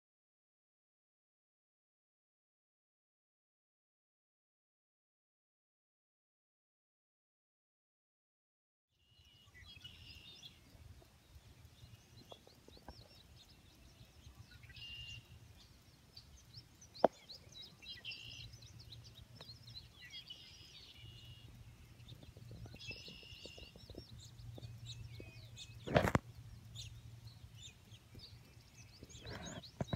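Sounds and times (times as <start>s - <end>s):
birds singing and chirping: 9.0s - 29.9s
low steady rumble: 9.2s - 29.2s.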